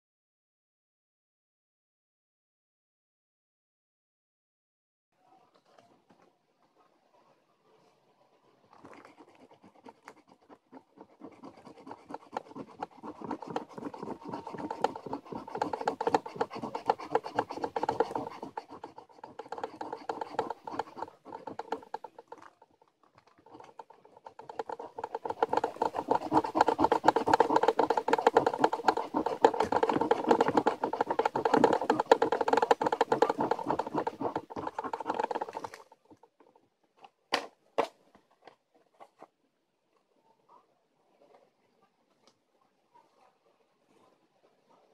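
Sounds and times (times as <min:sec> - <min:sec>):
scraping lottery ticket coating: 0:08.9 - 0:22.8, 0:23.4 - 0:35.9.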